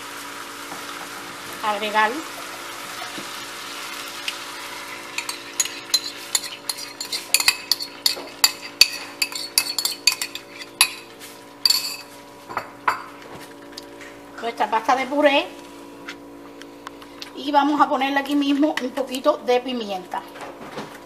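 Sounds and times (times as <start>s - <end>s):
utensil scraping a bowl: 5.2s - 12.1s.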